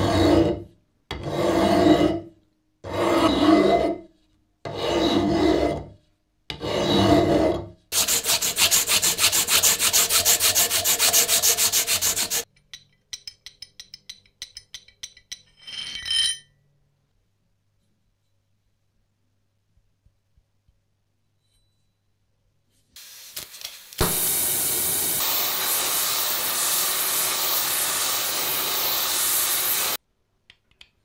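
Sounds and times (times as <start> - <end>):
hand file on steel: 0.0 - 2.3, 4.7 - 5.8, 6.5 - 12.5
abrasive cloth sanding metal: 7.9 - 12.5, 25.1 - 30.0.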